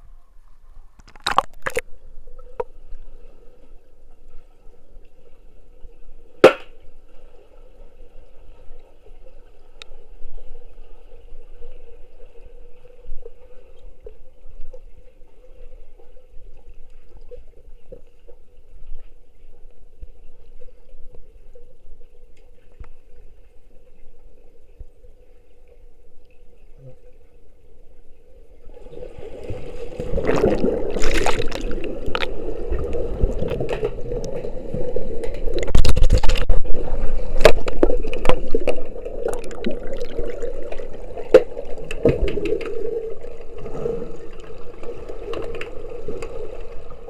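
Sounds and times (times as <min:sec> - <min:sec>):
sharp underwater knocks: 0:06.4 - 0:06.8, 0:35.5 - 0:36.7.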